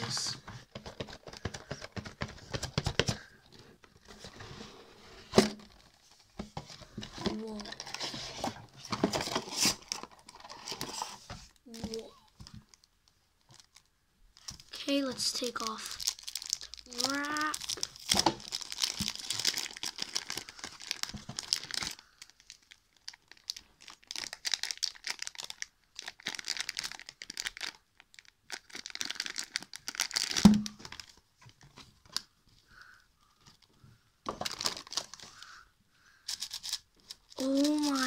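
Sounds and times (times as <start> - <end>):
plastic wrap crinkling and tearing: 7.2 - 32.3, 34.3 - 35.6, 36.3 - 38.0.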